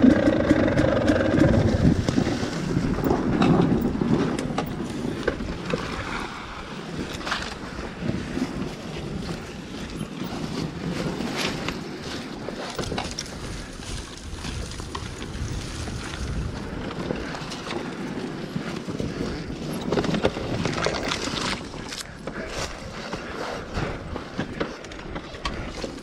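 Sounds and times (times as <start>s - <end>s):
dirt bike engine at low revs: 0.0s - 26.0s
knocks and brush scraping: 0.0s - 26.0s
wind buffeting microphone: 0.0s - 26.0s.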